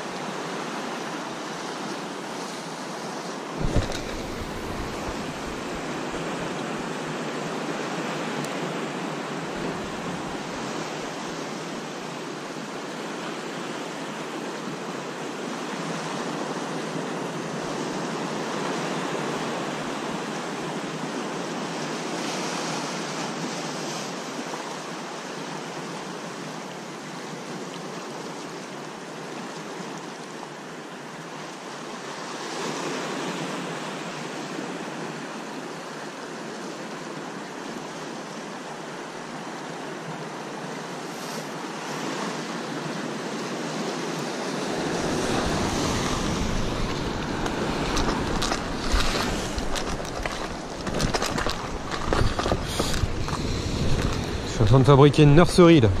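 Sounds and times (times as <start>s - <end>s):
waves breaking on rocks: 0.2s - 24.5s, 39.2s - 56.0s.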